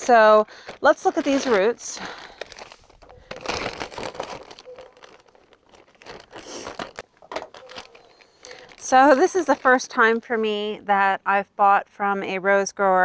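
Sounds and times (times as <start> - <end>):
plastic bag crinkling: 0.0 - 9.9.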